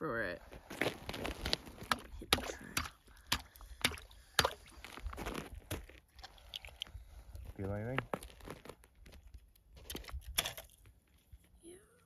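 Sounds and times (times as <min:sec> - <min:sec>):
crunches on icy snow: 0:00.4 - 0:11.6
water sloshing in ice hole: 0:00.6 - 0:11.2.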